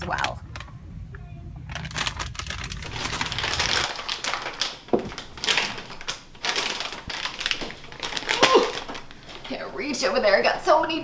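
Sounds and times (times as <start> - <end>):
plastic packaging crinkling: 1.6 - 9.6.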